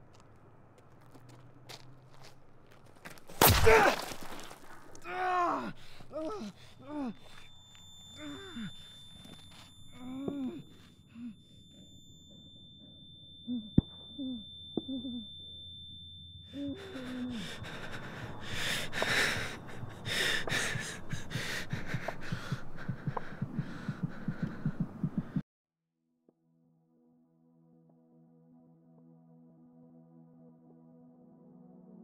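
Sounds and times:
man gasping and groaning: 5.0s - 7.4s, 10.0s - 11.4s, 16.6s - 25.2s
high ringing tone: 5.8s - 21.4s
low heartbeat-like throbs: 17.6s - 25.4s.

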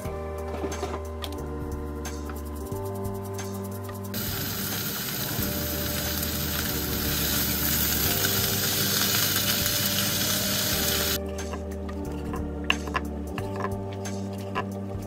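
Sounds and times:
meat sizzling in a frying pan: 4.2s - 11.2s.

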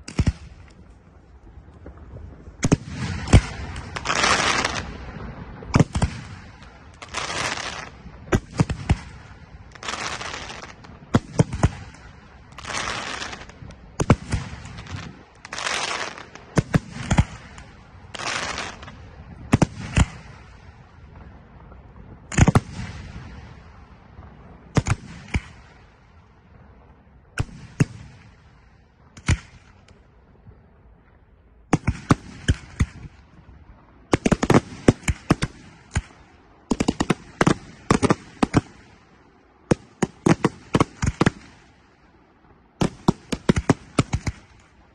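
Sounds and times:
fireworks hissing crackle: 0.0s - 24.2s
fireworks bangs: 0.0s - 44.9s.

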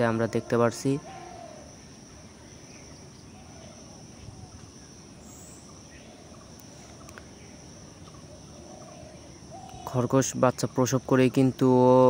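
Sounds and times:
faint distant calls: 0.0s - 12.0s
insect trill: 0.0s - 12.0s
low hiss: 0.0s - 12.0s.

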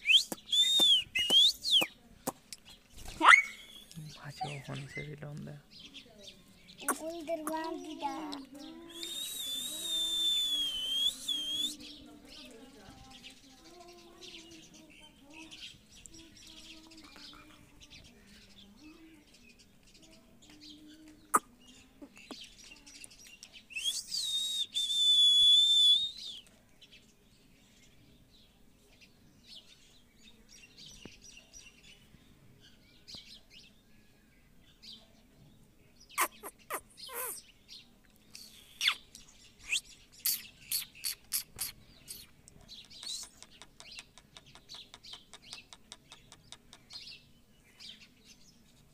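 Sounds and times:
sharp clicking chirps: 0.0s - 2.6s, 36.2s - 37.4s, 38.3s - 47.2s
parakeet screeching: 3.2s - 3.7s, 36.2s - 37.4s
parakeet chirping: 36.2s - 37.4s.

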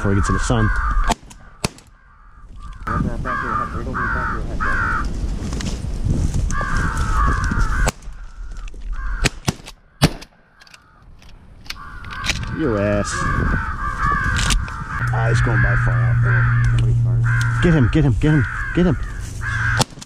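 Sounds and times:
crows cawing: 0.0s - 5.2s, 6.5s - 20.0s
sharp crack: 1.0s - 2.0s, 7.8s - 10.8s, 19.7s - 20.0s.

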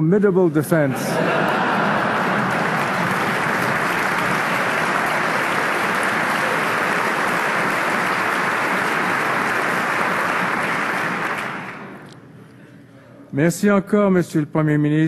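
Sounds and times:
audience applauding: 1.2s - 12.0s.

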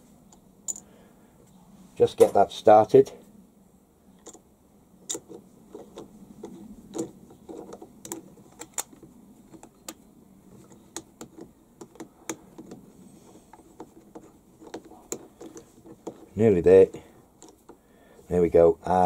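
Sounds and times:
screwdriver clicking and tapping: 5.1s - 10.0s, 10.6s - 12.8s, 13.5s - 16.3s.

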